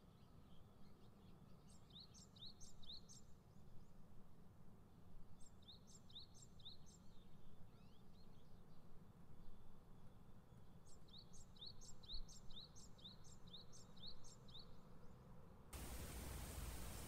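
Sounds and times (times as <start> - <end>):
faint bird chirping: 5.4 - 15.2, 15.8 - 17.0.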